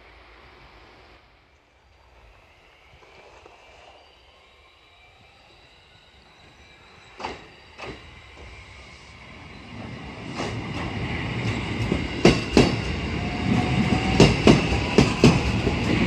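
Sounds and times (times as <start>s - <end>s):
rails hissing and singing: 0.0s - 16.0s
train wheels clacking on rail joint: 7.2s - 8.5s, 10.3s - 16.0s.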